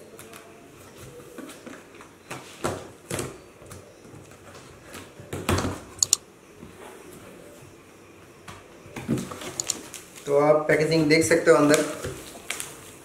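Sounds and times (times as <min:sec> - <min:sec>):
sharp clicks: 0:06.0 - 0:06.2, 0:09.6 - 0:09.8.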